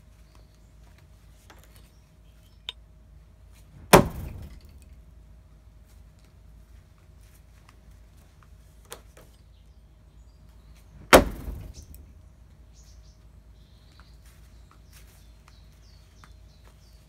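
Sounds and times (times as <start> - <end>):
axe striking wooden target: 3.8 - 5.0, 11.0 - 12.1.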